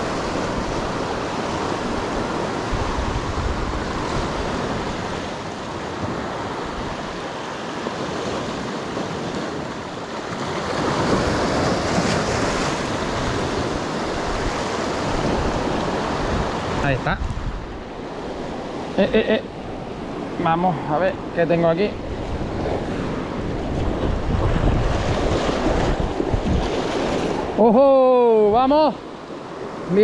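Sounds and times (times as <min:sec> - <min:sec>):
wind noise on microphone: 0:01.7 - 0:05.3, 0:10.8 - 0:17.8, 0:22.0 - 0:27.6.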